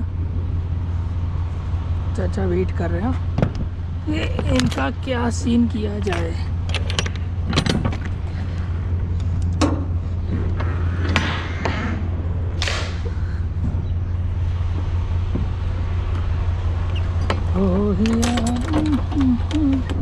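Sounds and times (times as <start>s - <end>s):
truck diesel engine idling: 0.0s - 11.2s, 11.8s - 20.0s
scattered clicks: 16.8s - 20.0s.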